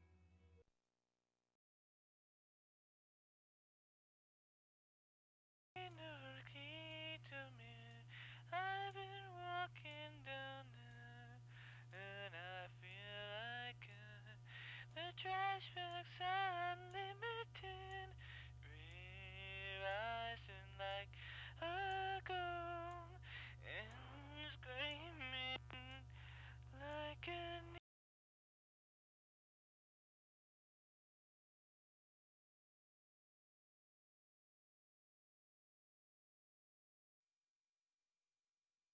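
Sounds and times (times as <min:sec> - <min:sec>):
steady low hum: 0:05.8 - 0:27.8.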